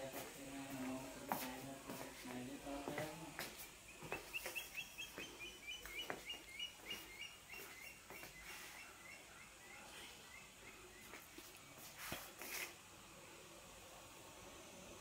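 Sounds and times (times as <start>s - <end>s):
bird chirping quickly: 3.8s - 11.2s.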